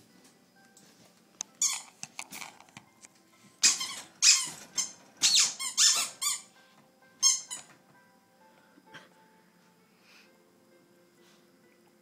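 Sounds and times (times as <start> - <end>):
squeaky toy squeaking: 1.6 - 2.0, 3.6 - 6.5, 7.2 - 7.7.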